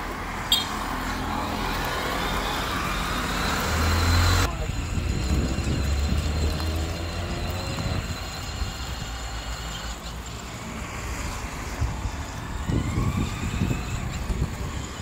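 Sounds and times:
plastic wheels rumbling on asphalt: 0.0s - 15.0s
toy buggy motors whining: 0.5s - 15.0s
wind buffeting microphone: 3.6s - 9.6s, 11.3s - 15.0s.

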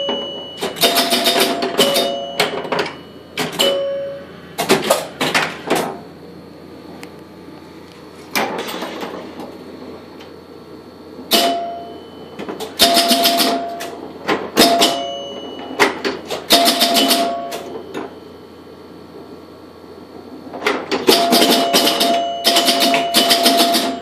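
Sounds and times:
pinball relays clicking rapidly: 0.0s - 4.0s, 11.3s - 18.1s, 20.6s - 24.0s
pinball chimes ringing: 0.0s - 4.4s, 11.3s - 18.5s, 20.8s - 24.0s.

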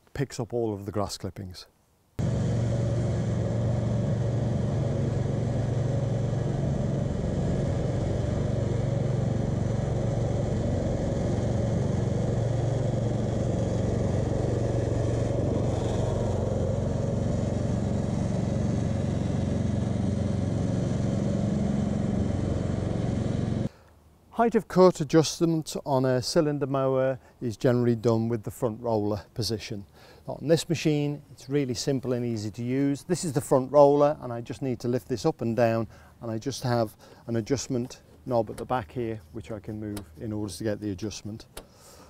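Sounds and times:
lawn mower engine running: 2.2s - 23.7s.

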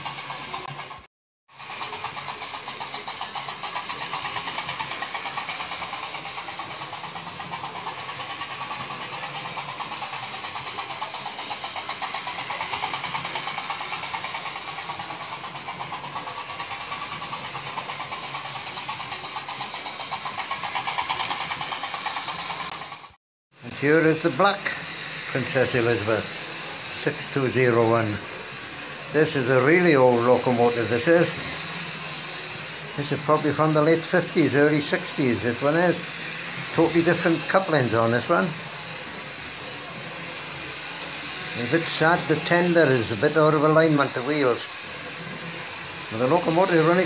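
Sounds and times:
wheels running on rails: 0.0s - 47.0s
model train motor buzzing: 1.6s - 23.1s, 23.7s - 47.0s.

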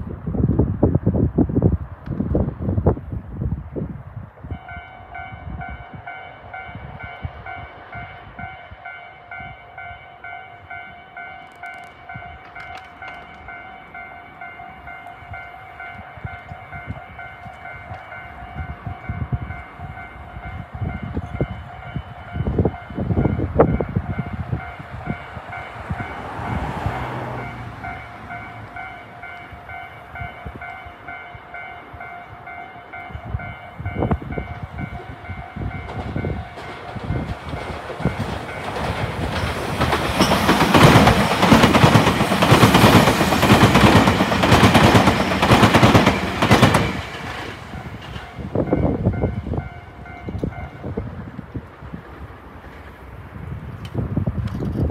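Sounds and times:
wind buffeting microphone: 0.0s - 54.9s
railway crossing warning bell: 4.4s - 51.6s
train wheels clattering: 34.2s - 50.8s.

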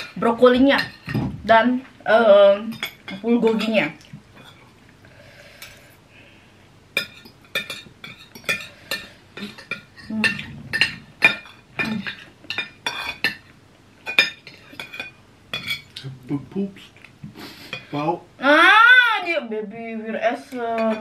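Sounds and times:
cutlery scraping ceramic plates: 7.0s - 16.0s.

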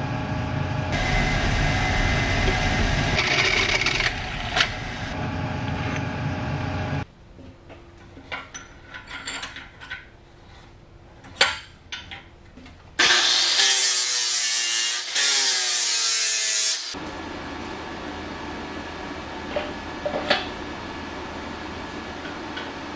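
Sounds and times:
angle grinder cutting metal: 1.0s - 5.2s, 13.0s - 17.0s
drill press boring into steel: 2.4s - 5.0s
metal clanks and taps: 11.2s - 12.8s.

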